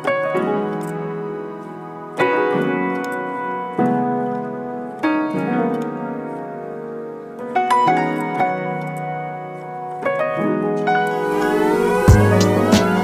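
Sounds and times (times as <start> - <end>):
slow sustained music chords: 11.1 - 13.0.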